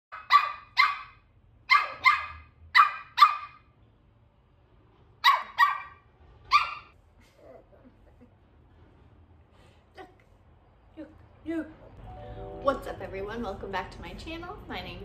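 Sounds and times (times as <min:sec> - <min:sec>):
puppy barking: 0:00.1 - 0:03.7, 0:05.2 - 0:07.0.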